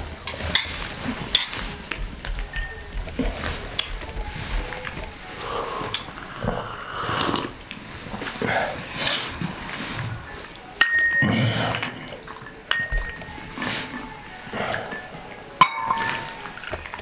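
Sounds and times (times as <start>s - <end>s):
faint voices: 0.0s - 17.0s
china clinking: 2.4s - 3.0s, 10.7s - 17.0s.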